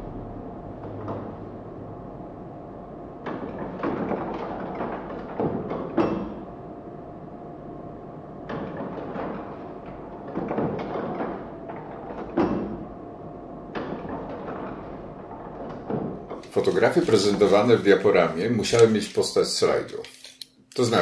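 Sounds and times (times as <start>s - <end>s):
faint steady drone: 0.0s - 3.9s
clusters of knocks: 3.2s - 6.5s, 8.4s - 13.0s.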